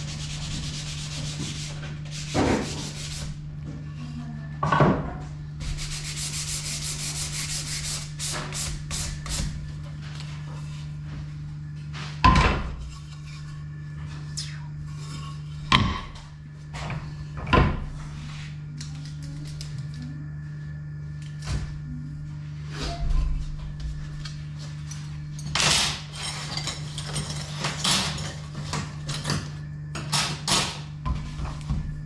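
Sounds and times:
hand-sanding wood: 0:00.0 - 0:03.4, 0:05.6 - 0:09.5.

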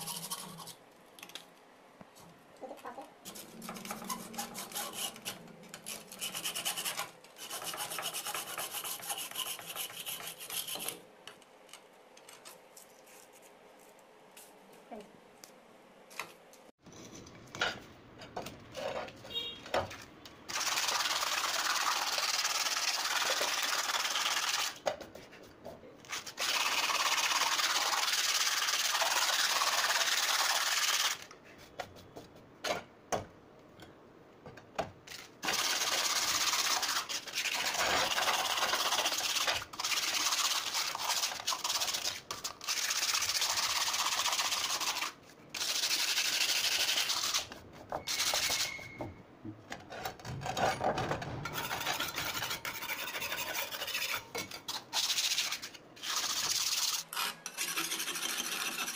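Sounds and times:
stiff brush scrubbing concrete: 0:51.6 - 0:58.9.

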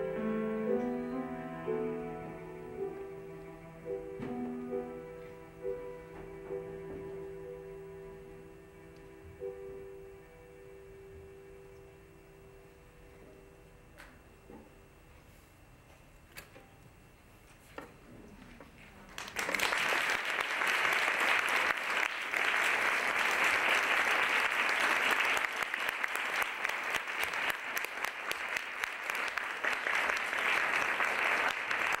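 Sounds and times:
audience applause: 0:19.1 - 0:32.0.

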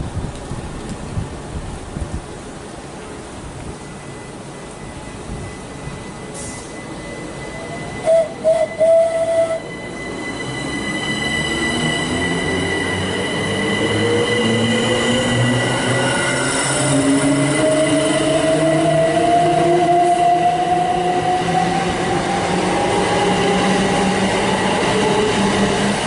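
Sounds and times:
train traction motor whine: 0:03.8 - 0:26.0
high train horn toots: 0:06.4 - 0:09.9.

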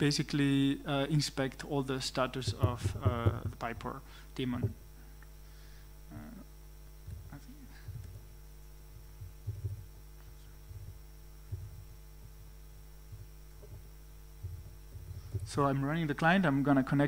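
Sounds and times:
electrical hum: 0:00.0 - 0:17.0
laptop keystroke thuds: 0:08.9 - 0:09.9.

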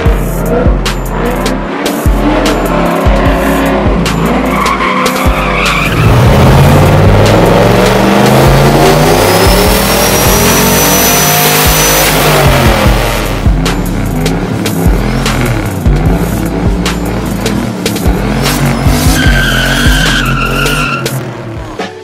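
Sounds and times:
car engine revving: 0:00.0 - 0:21.8
tyres squealing: 0:03.3 - 0:06.4, 0:18.2 - 0:21.5.

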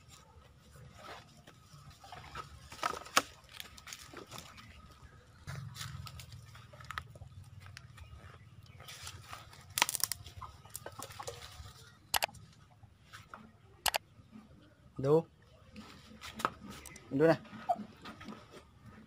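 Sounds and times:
dry leaves and twigs crackling: 0:00.0 - 0:13.4
chickens clucking: 0:00.2 - 0:14.8, 0:15.6 - 0:19.0.

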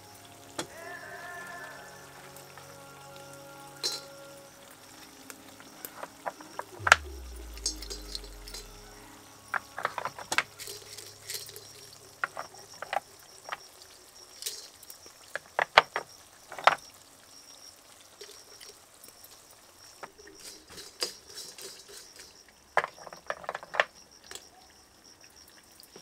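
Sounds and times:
spices rattling on metal pan: 0:10.6 - 0:15.2, 0:20.4 - 0:22.5.

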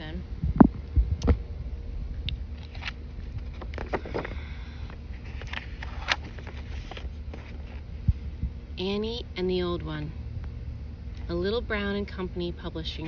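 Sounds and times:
steady low rumble: 0:00.0 - 0:13.0
book handling rustles and taps: 0:02.6 - 0:04.4, 0:05.2 - 0:07.8
paper rustles: 0:02.6 - 0:04.5, 0:05.1 - 0:07.8.

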